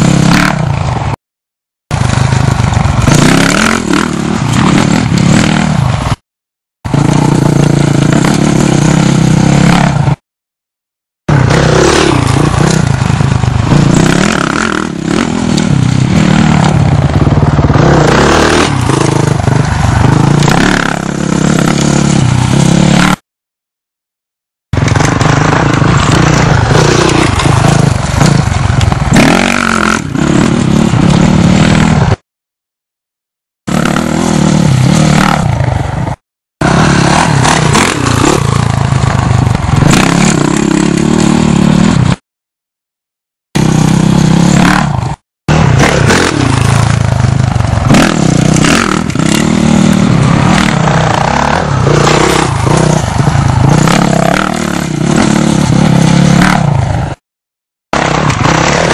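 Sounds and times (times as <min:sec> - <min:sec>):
dirt bike engine revving: 0:00.0 - 0:01.2, 0:01.9 - 0:06.2, 0:06.9 - 0:10.2, 0:11.3 - 0:23.2, 0:24.8 - 0:32.2, 0:33.7 - 0:42.2, 0:43.6 - 0:57.2, 0:58.0 - 0:58.9
rough clattering noise: 0:06.9 - 0:10.2, 0:24.8 - 0:32.2, 0:33.7 - 0:42.2.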